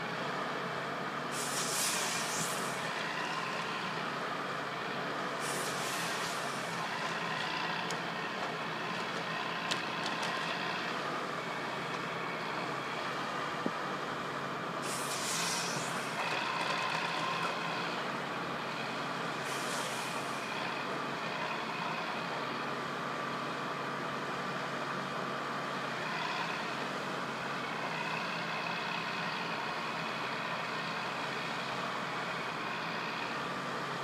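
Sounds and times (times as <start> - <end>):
harvester engine running: 0.0 - 34.0
short bursts of hiss: 1.3 - 2.8, 5.4 - 6.7, 14.8 - 16.2, 19.4 - 20.4.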